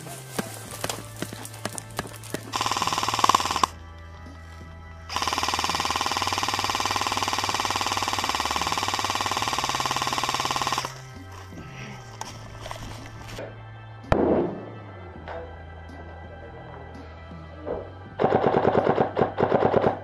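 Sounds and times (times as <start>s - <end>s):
airsoft rifle automatic fire: 2.5s - 3.8s, 5.1s - 11.0s.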